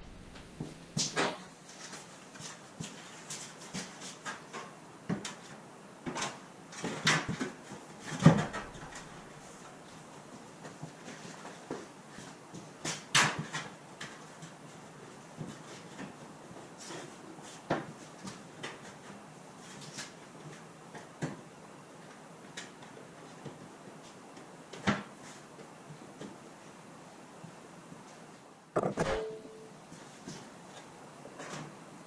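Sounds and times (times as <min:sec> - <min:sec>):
knocks and clunks of handling work: 0:06.0 - 0:09.3, 0:28.8 - 0:29.6.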